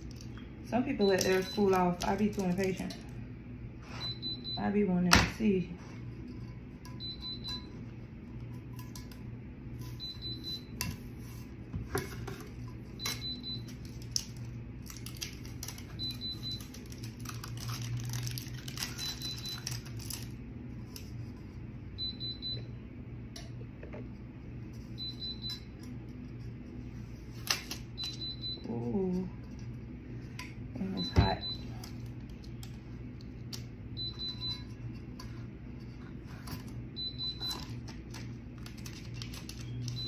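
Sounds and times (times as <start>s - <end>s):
steady low hum: 0.0s - 40.0s
plastic wrapping crinkling: 1.2s - 3.0s, 13.6s - 20.4s, 37.5s - 40.0s.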